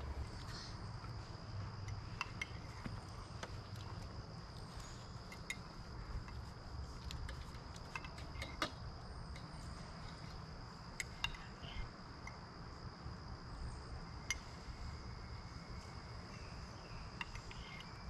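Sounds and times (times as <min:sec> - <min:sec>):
high insect drone: 0:00.0 - 0:18.0
spoons clinking on cups: 0:05.2 - 0:05.7.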